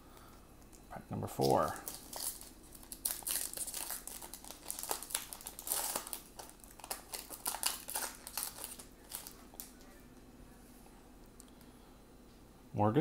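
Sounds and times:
wrapper crinkling: 1.4s - 9.9s.

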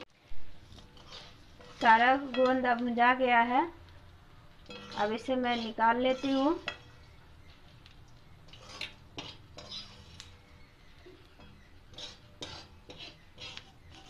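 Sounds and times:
wire skimmer scraping metal pan: 0.8s - 2.7s, 4.7s - 7.0s, 8.5s - 10.3s, 11.4s - 14.0s.

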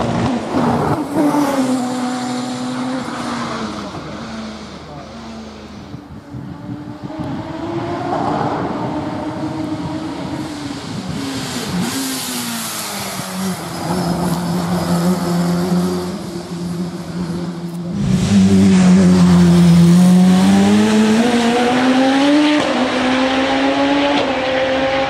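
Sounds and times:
racing car engine accelerating: 6.6s - 25.0s.

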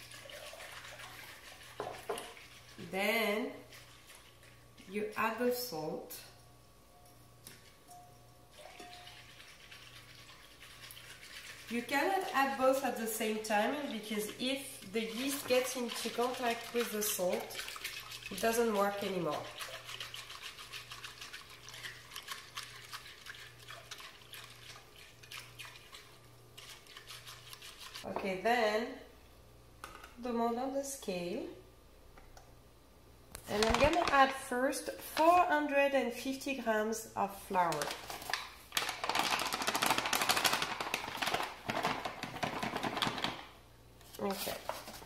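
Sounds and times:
whisk swishing through liquid: 0.0s - 4.9s, 8.6s - 28.1s
whisk ticking against glass: 7.9s - 9.6s.

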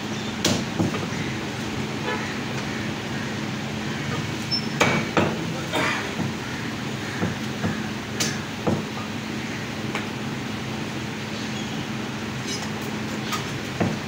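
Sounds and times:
steady background hum: 0.0s - 14.0s
cleaver chopping on wooden block: 7.1s - 8.9s.

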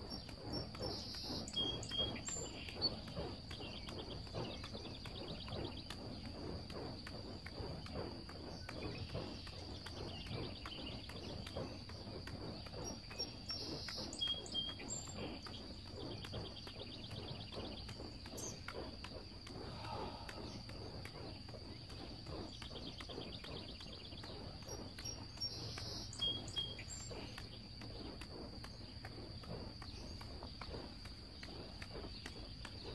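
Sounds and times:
sharp bird calls: 0.0s - 6.3s
juggled torches whooshing and thudding: 0.0s - 32.9s
steady high whine: 0.0s - 32.9s.

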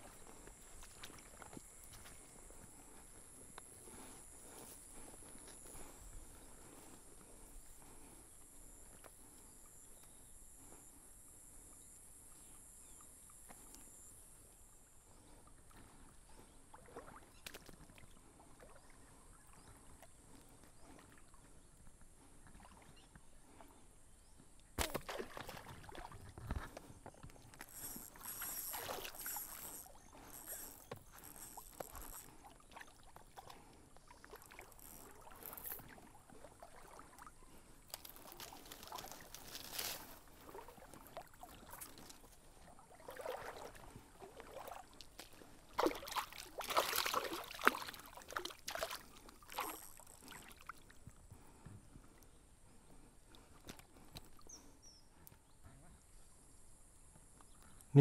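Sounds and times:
water sloshing: 24.8s - 51.2s
brush rustling: 37.9s - 42.3s.

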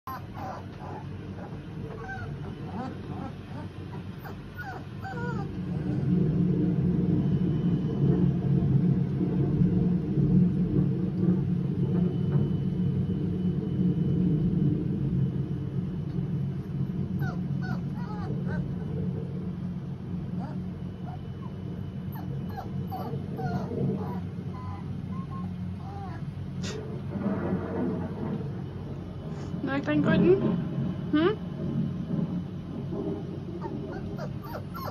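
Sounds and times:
puppies whimpering and yipping: 0.1s - 6.2s, 17.2s - 19.1s, 20.4s - 26.4s, 33.6s - 34.9s
thunder rolling: 5.2s - 34.8s.

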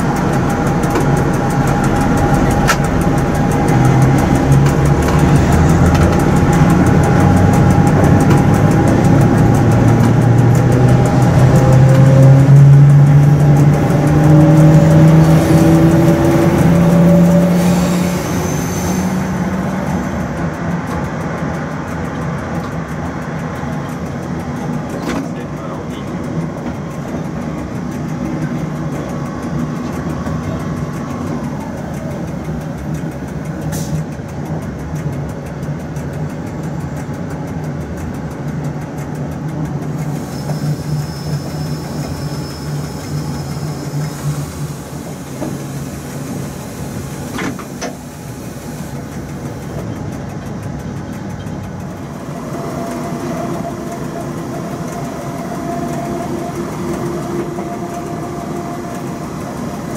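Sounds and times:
humming tone: 0.0s - 25.0s, 51.9s - 59.9s
locomotive hum and rail wheels: 0.0s - 59.9s
sharp clicks: 0.0s - 59.9s.

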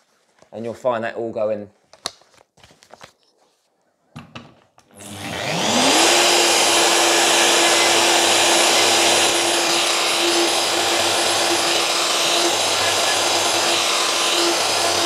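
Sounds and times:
router whining: 4.9s - 15.0s.

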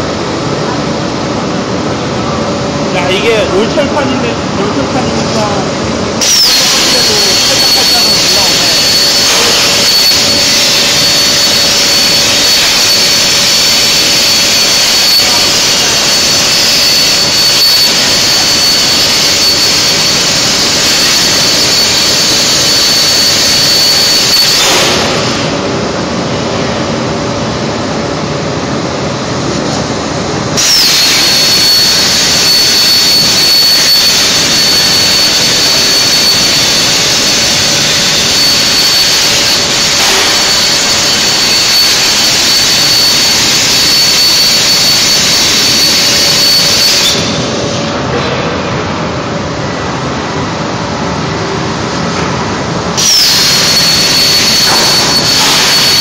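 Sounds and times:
plasma torch cutting steel: 6.2s - 25.6s, 30.6s - 47.8s, 53.0s - 56.0s.

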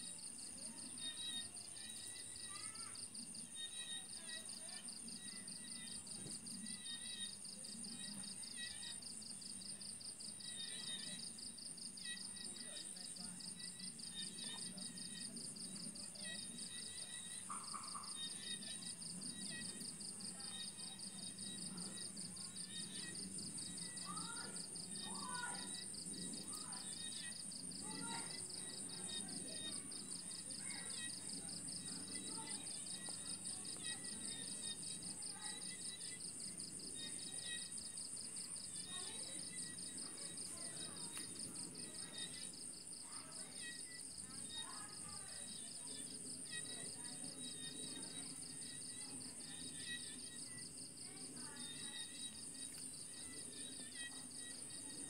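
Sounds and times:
insects trilling: 0.1s - 55.0s.

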